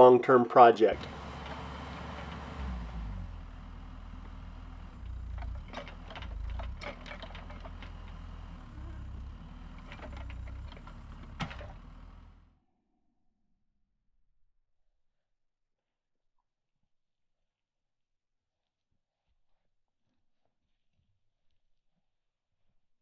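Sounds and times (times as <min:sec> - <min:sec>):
excavator diesel engine running: 0:00.0 - 0:12.6
sharp knocks and cracks: 0:05.0 - 0:08.4.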